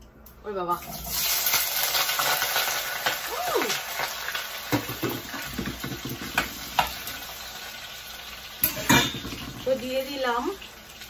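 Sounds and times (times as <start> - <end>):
oil sizzling in a frying pan: 0.8 - 11.0
spoon stirring and knocking pan: 4.7 - 7.1, 8.6 - 9.8.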